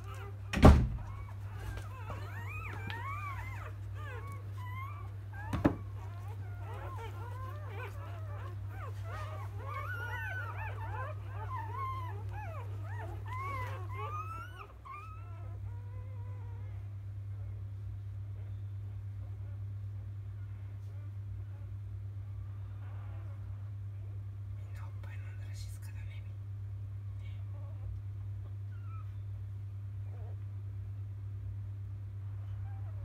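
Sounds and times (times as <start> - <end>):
puppies squeaking and whimpering: 0.0 - 16.8, 27.5 - 29.4
steady low hum: 0.0 - 33.0.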